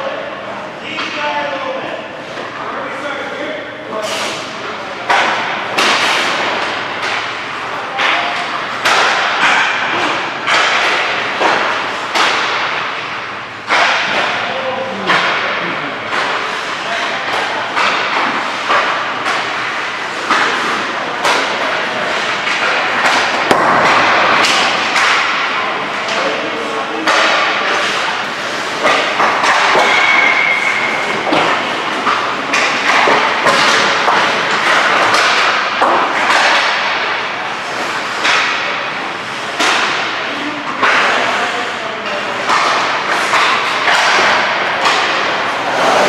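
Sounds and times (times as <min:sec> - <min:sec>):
hockey sticks and pucks clacking: 0:00.9 - 0:01.6, 0:03.4 - 0:46.0
skate blades scraping ice: 0:44.9 - 0:46.0.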